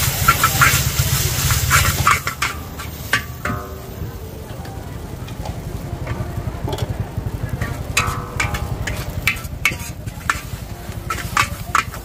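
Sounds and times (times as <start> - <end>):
metal spatula scraping a wok: 0.0 - 4.0, 7.6 - 12.0
low rumble: 0.0 - 12.0.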